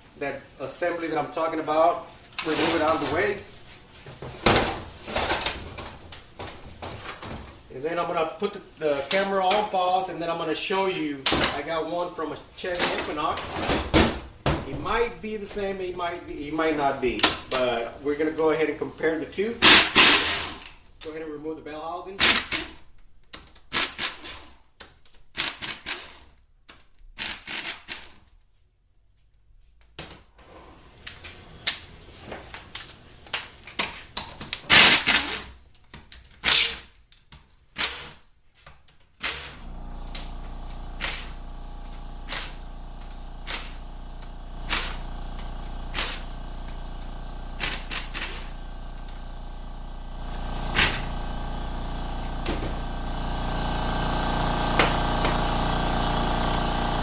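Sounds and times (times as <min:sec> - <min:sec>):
air ratchet rattling bursts: 0:19.6 - 0:20.7, 0:22.2 - 0:22.7, 0:34.7 - 0:35.5, 0:37.8 - 0:38.2, 0:40.9 - 0:49.3
steady motor hum: 0:39.2 - 0:57.0.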